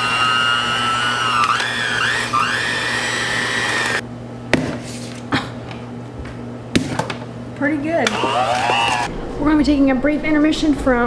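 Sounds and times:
electric hand mixer whining: 0.0 - 4.0, 8.0 - 9.1.

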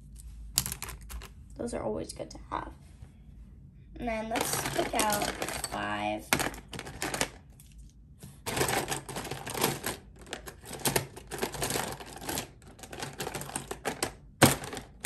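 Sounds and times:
plastic pens clattering and clicking: 0.6 - 1.3, 4.3 - 7.9, 8.5 - 15.0.

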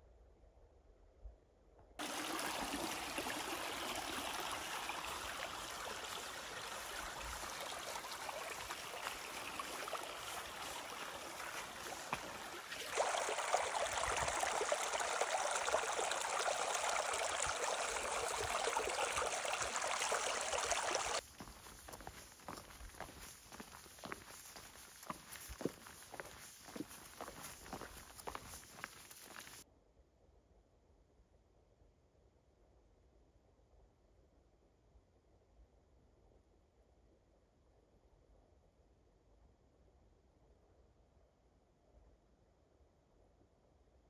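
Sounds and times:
stream trickling over stones: 2.0 - 29.6.

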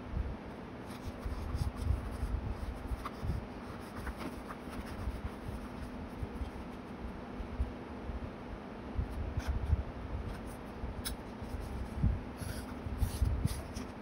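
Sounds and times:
paper rustling and rubbing: 0.8 - 7.0, 9.4 - 14.0.

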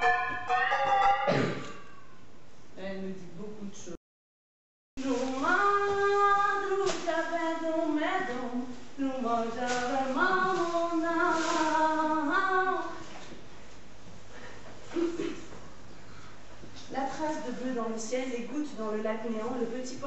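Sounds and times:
woman singing slow melody: 5.0 - 13.0.

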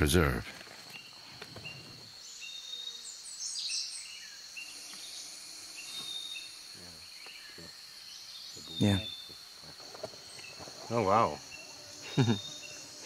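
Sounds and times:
high insect drone: 0.0 - 13.0
bird chirps: 0.8 - 13.0.

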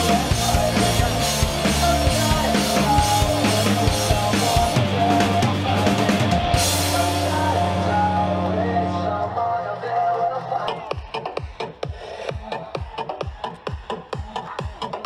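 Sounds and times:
drum kit beat: 0.0 - 9.1, 10.6 - 15.0
rock music: 0.0 - 11.8.

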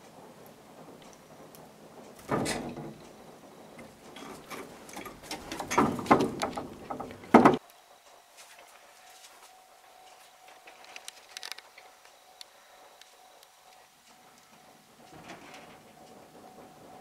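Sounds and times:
wooden window blind rattling: 0.0 - 7.6, 14.4 - 17.0.

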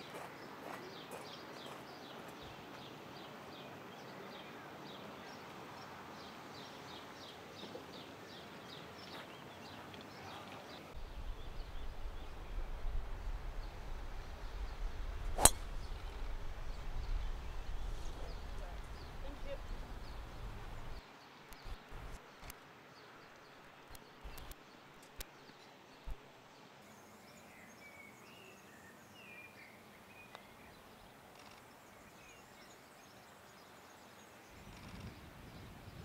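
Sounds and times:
wind rumble on microphone: 11.0 - 21.0
bird chirping: 14.4 - 22.2
golf ball struck by driver: 15.3 - 16.3.

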